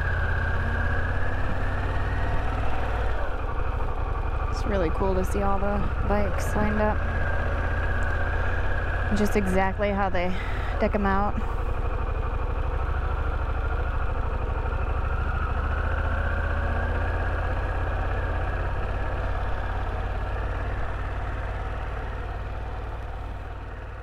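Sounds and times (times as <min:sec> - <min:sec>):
motorcycle engine running: 0:00.0 - 0:24.0.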